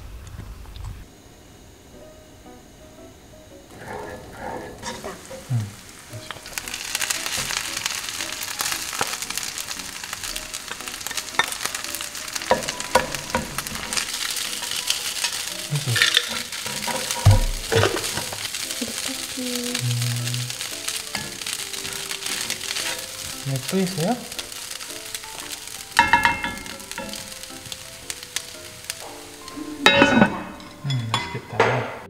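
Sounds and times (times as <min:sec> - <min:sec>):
rice sizzling in a pan: 0:01.0 - 0:32.0
spatula scraping a pan: 0:06.2 - 0:18.6, 0:20.5 - 0:23.4.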